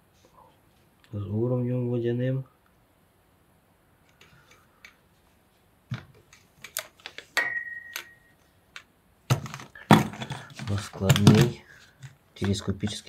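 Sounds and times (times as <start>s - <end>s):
high ringing tone: 7.4s - 8.5s.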